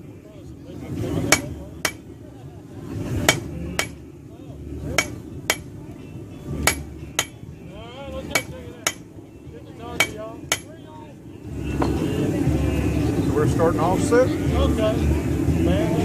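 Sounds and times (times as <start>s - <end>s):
hammer striking steel on anvil: 1.3s - 2.1s, 3.3s - 4.0s, 4.9s - 5.8s, 6.6s - 7.4s, 8.3s - 9.1s, 10.0s - 10.8s.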